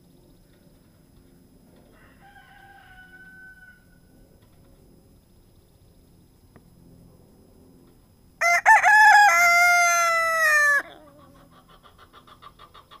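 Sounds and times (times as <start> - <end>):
rooster crowing: 1.9 - 4.1, 8.4 - 11.2.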